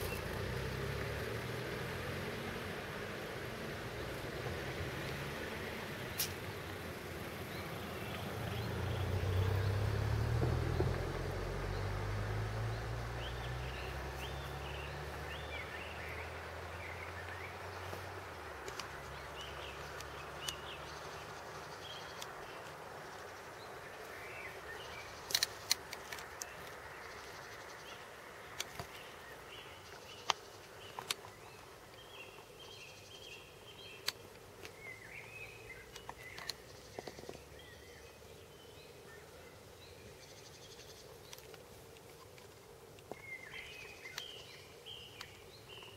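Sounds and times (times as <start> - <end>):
low engine rumble: 0.0 - 25.2
birds chirping: 0.0 - 45.9
sharp clicks: 25.2 - 26.8, 34.0 - 34.8.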